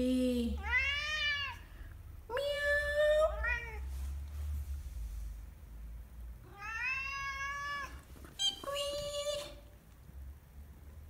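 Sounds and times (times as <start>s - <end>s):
cat meowing: 0.6s - 1.7s, 3.4s - 3.9s, 6.4s - 8.7s.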